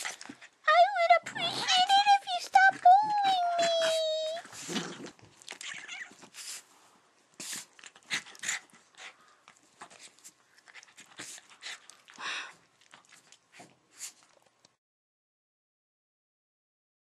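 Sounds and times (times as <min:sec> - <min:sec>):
dog snuffling and panting: 0:06.2 - 0:14.5.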